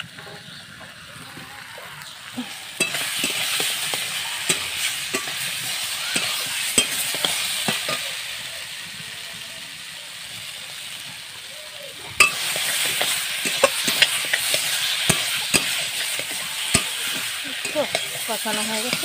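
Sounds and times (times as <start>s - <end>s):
potatoes sizzling in a wok: 0.0s - 19.0s
metal spatula scraping a pan: 2.4s - 8.2s, 12.0s - 19.0s.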